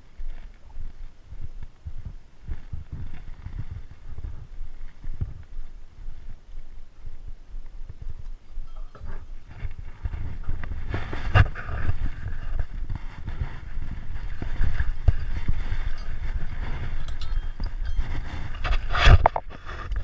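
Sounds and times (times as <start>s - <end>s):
wind rumbling on microphone: 0.0s - 20.0s
rustling scrape: 8.7s - 20.0s.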